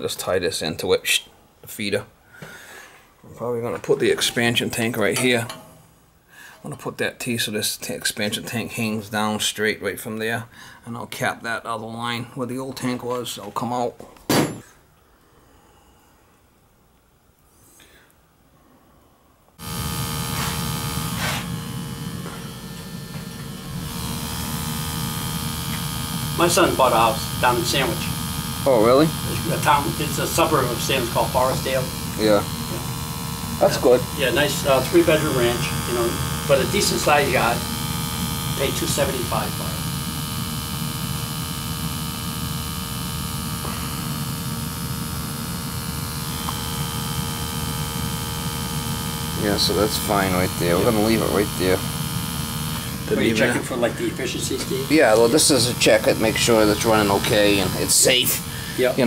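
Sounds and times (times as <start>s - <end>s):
gas boiler humming: 19.6s - 59.0s.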